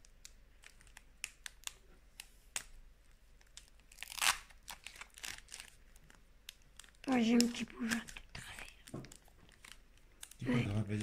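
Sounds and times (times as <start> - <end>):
foil wrapper crinkling: 0.0 - 11.0
foil pack tearing: 3.9 - 5.8.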